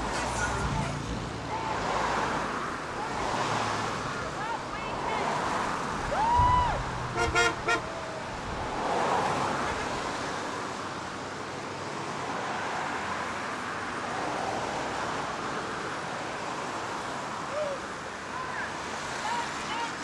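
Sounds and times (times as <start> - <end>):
tyres hissing on wet road: 0.0 - 20.0
car horn beeps: 7.1 - 7.9.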